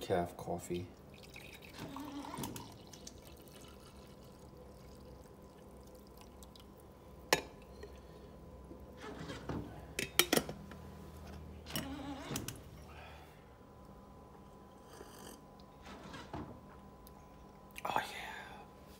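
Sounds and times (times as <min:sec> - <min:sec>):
coffee pouring into a mug: 0:01.0 - 0:06.9.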